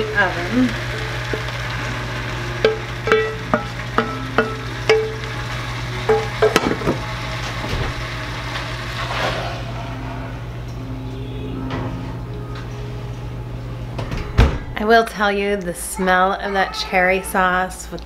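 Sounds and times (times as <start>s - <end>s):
steady low hum: 0.1s - 15.9s
pans clattering: 2.6s - 5.4s, 6.0s - 8.0s.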